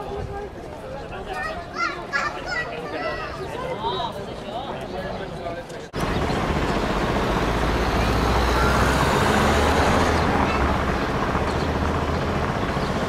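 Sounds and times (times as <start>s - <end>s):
voices of passers-by: 0.0s - 13.0s
traffic noise: 5.9s - 13.0s
vehicle engine rumbling: 6.0s - 13.0s.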